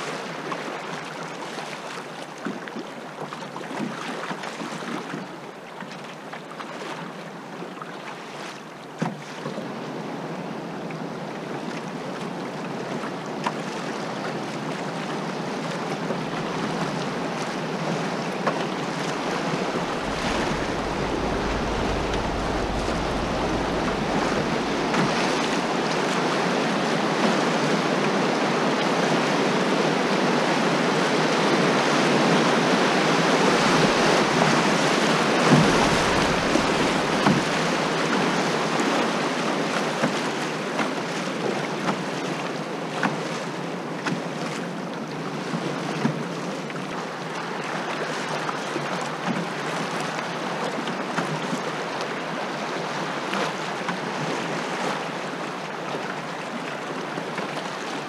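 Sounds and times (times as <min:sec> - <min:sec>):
river water rushing and splashing: 0:00.0 - 0:58.0
wind buffeting microphone: 0:16.0 - 0:28.0, 0:32.4 - 0:39.3.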